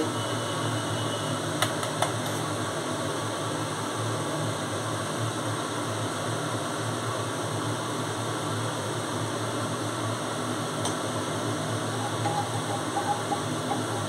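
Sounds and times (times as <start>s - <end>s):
mechanical hum with hiss: 0.0s - 14.0s.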